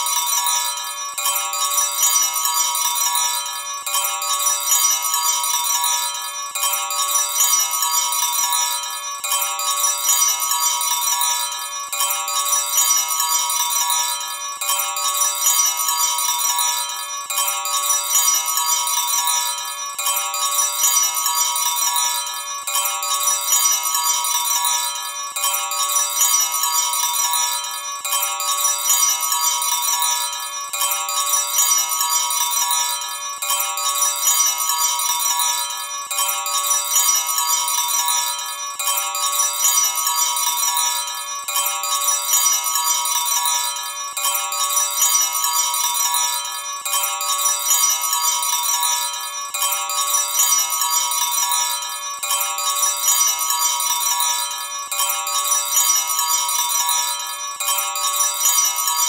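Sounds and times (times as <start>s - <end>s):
small bells jingling: 22.7s - 59.0s.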